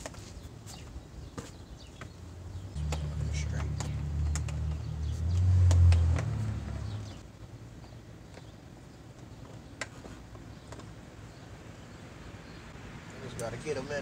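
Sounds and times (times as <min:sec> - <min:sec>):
vehicle engine passing: 0:02.8 - 0:07.2.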